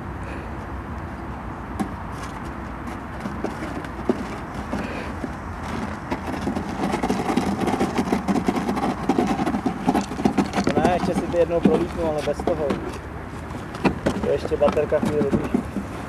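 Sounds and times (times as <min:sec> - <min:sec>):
box scraping over gravel: 0:02.1 - 0:16.0
cardboard box knocking: 0:03.2 - 0:13.0, 0:13.7 - 0:16.0.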